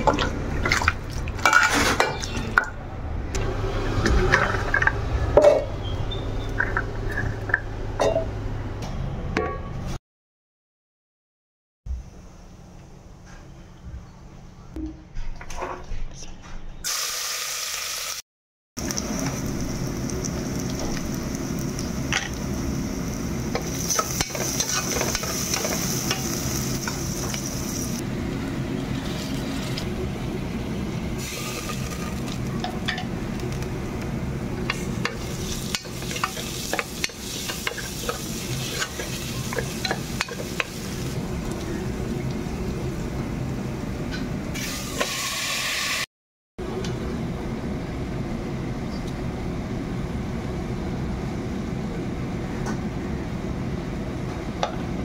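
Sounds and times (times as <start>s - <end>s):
onions sizzling in hot oil: 16.9s - 18.2s, 18.8s - 28.0s, 31.2s - 32.5s, 34.6s - 41.7s, 44.6s - 46.0s.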